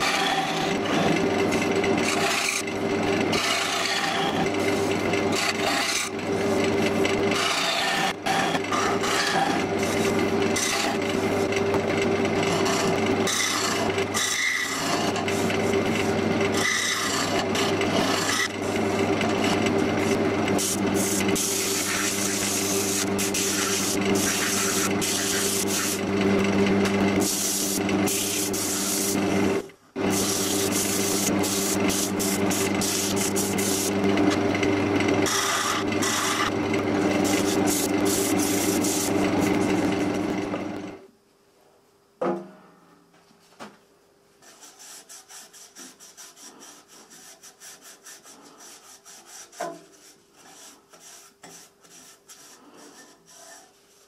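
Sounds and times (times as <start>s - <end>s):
tool scraping spinning wood: 0.0s - 41.0s, 44.4s - 54.0s
wood lathe motor hum: 0.0s - 41.1s.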